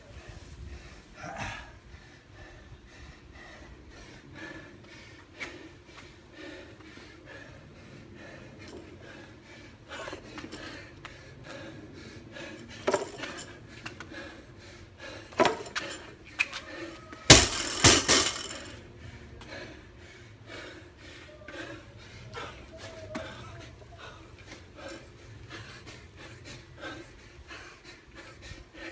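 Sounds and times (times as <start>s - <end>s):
gym weights clanking: 17.3s - 18.8s.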